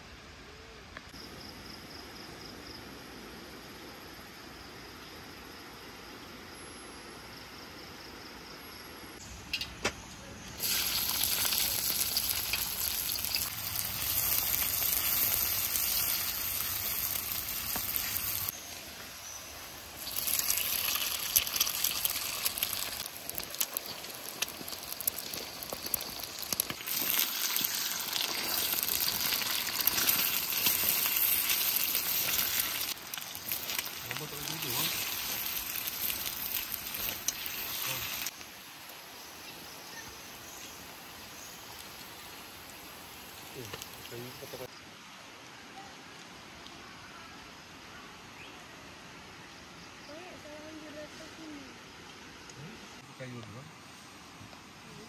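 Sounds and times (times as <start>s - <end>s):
eggs sizzling in hot oil: 10.6s - 44.8s.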